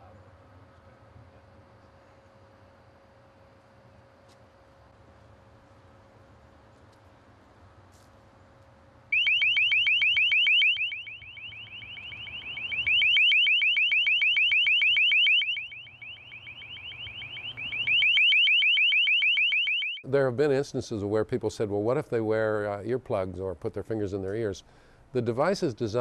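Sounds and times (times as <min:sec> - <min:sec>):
high-pitched warbling alarm tone: 0:09.2 - 0:20.0.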